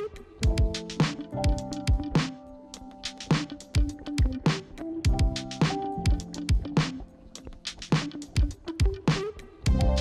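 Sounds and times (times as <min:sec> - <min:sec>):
held chords: 0:00.0 - 0:10.0
deep kick drums: 0:09.7 - 0:10.0.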